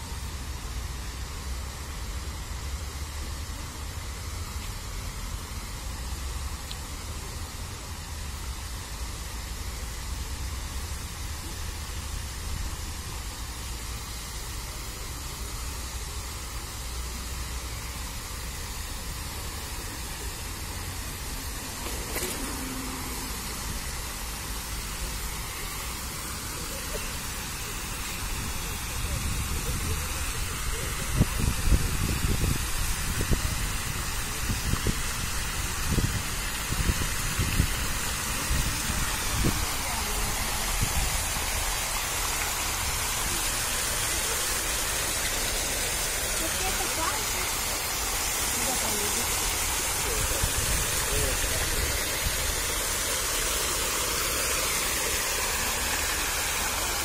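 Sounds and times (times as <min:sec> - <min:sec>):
fountain water splashing: 0:00.0 - 0:57.0
wind rumble on microphone: 0:30.8 - 0:41.1.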